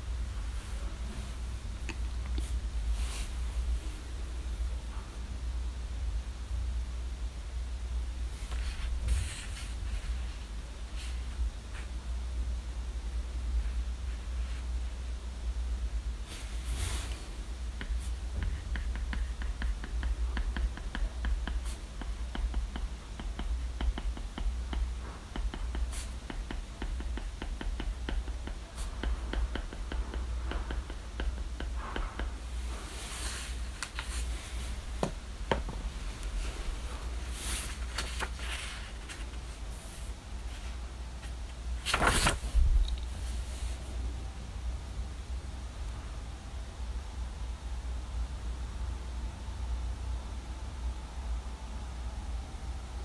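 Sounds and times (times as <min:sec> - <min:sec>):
steady low hum: 0:00.0 - 0:53.0
soft rustles: 0:00.3 - 0:04.3, 0:08.3 - 0:12.0, 0:16.2 - 0:18.6, 0:32.4 - 0:44.1.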